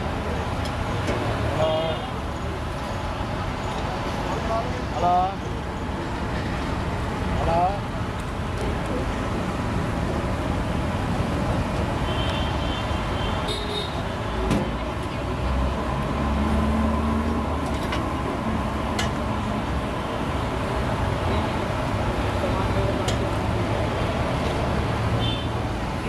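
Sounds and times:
street traffic noise: 0:00.0 - 0:26.0
vehicle engine drone: 0:14.2 - 0:26.0.

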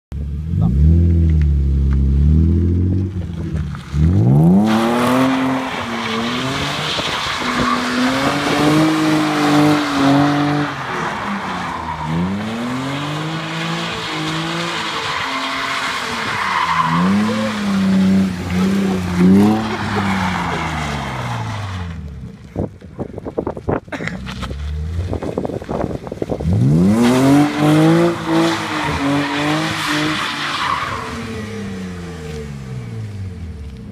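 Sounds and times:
car engine revving: 0:00.2 - 0:22.5, 0:24.2 - 0:33.9
tyres squealing: 0:05.2 - 0:21.9.

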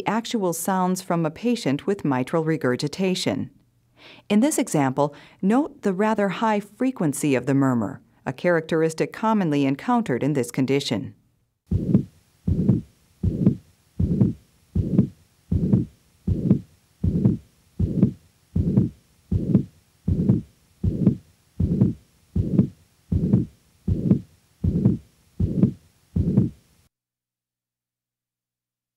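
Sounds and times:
heartbeat with high-pitched murmur: 0:11.7 - 0:26.6.

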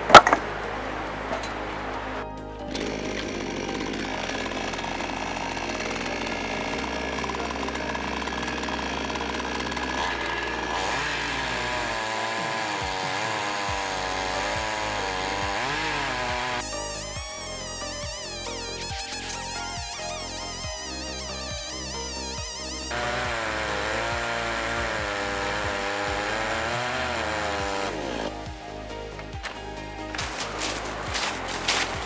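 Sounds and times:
chainsaw ripping log: 0:00.0 - 0:00.5, 0:02.6 - 0:28.5, 0:29.4 - 0:32.0.

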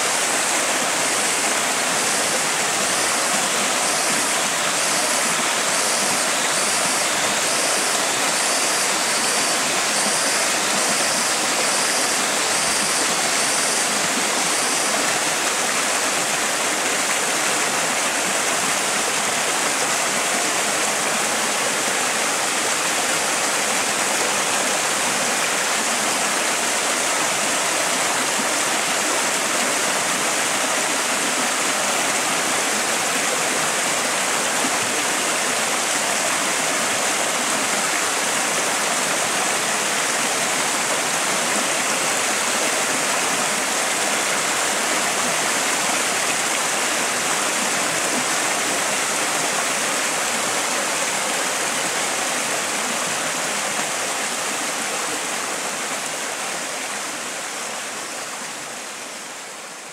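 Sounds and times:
stream rushing over rocks: 0:00.0 - 0:59.9.

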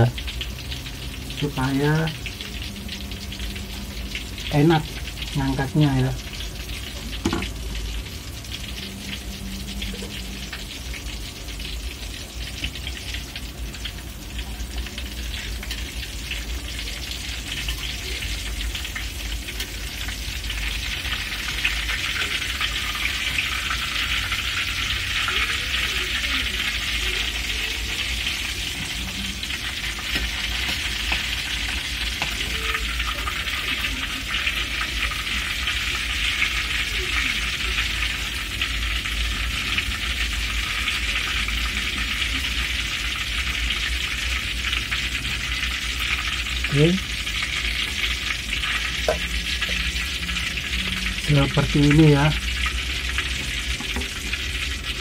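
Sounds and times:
hot oil sizzling in a wok: 0:00.0 - 0:55.0.

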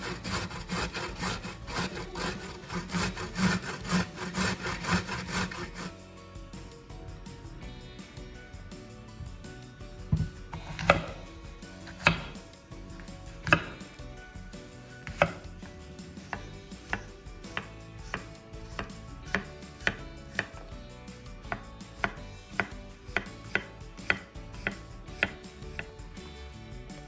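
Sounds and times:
knife cutting on a cutting board: 0:00.0 - 0:05.9, 0:10.5 - 0:11.2, 0:11.8 - 0:13.9, 0:15.0 - 0:15.4, 0:16.2 - 0:20.7, 0:21.5 - 0:25.9.

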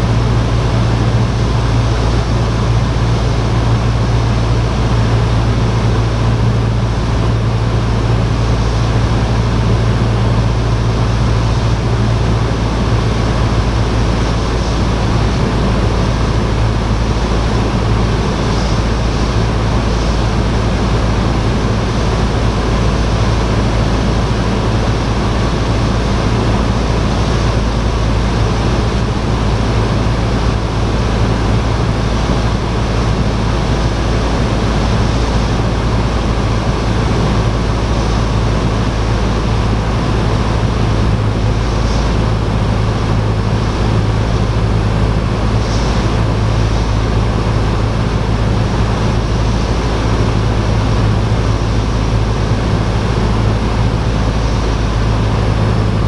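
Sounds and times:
airplane engine droning: 0:00.0 - 0:56.0
rushing noise: 0:00.0 - 0:56.0.

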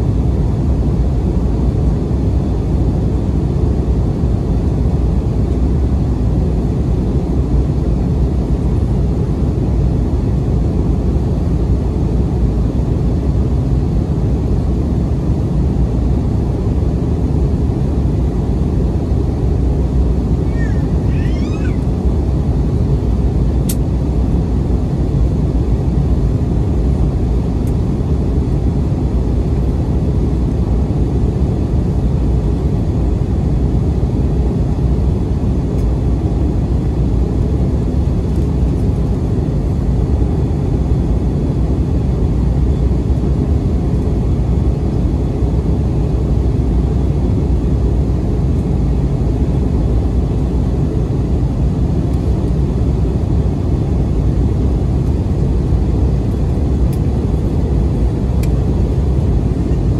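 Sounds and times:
jet engines low rumble: 0:00.0 - 0:59.9.

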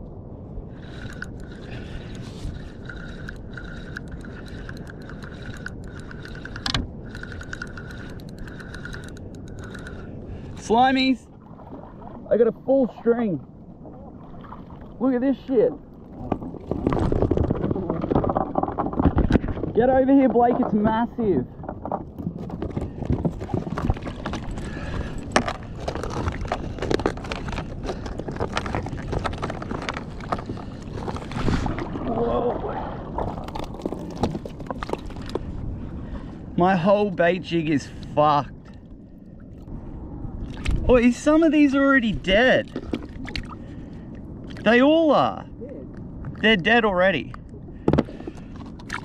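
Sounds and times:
wind: 0:00.0 - 0:49.0
fishing reel gears whining: 0:00.8 - 0:10.0
low rumble: 0:37.8 - 0:46.6.

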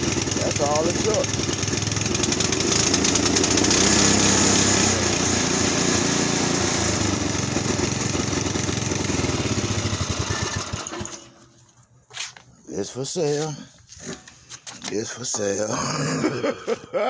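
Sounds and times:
small gasoline engine running: 0:00.0 - 0:11.5.

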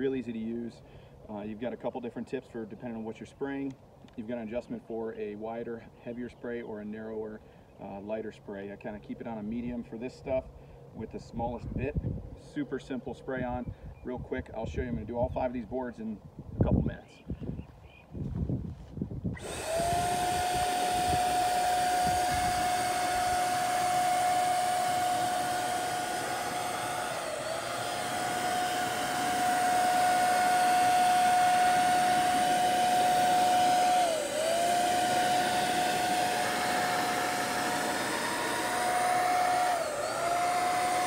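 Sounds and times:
paint sprayer whining over air hiss: 0:19.4 - 0:41.0.

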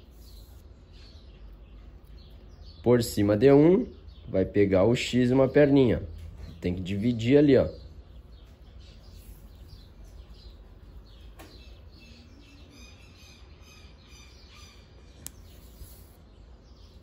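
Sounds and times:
faint bird chirping: 0:00.0 - 0:17.0
small sharp clicks: 0:15.2 - 0:16.0.

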